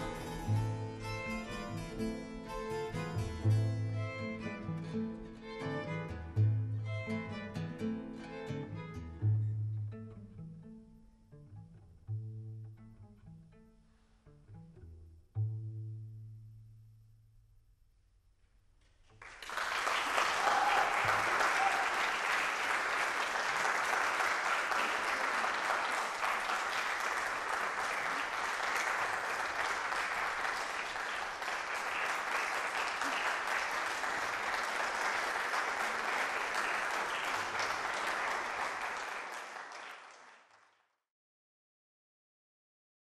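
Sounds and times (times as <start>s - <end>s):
audience applauding: 19.1s - 41.0s.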